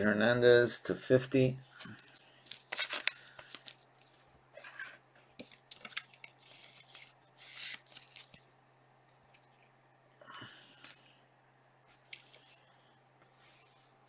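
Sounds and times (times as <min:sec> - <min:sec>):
cards and wrapper rustling: 0:01.8 - 0:08.6.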